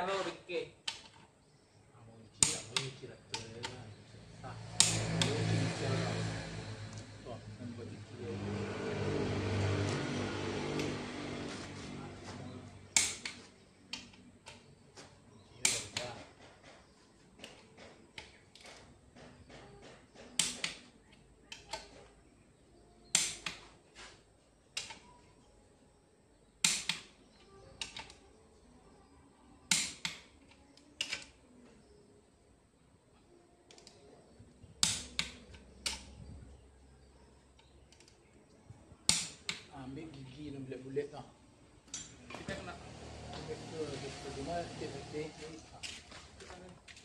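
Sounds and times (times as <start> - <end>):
vehicle engine running: 3.4 - 13.7, 42.2 - 46.8.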